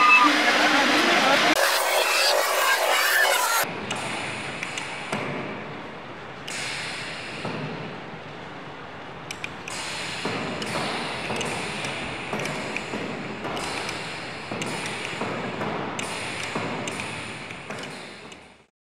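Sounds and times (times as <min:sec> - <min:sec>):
mechanism clattering and hissing: 0:06.5 - 0:07.9, 0:09.3 - 0:18.7.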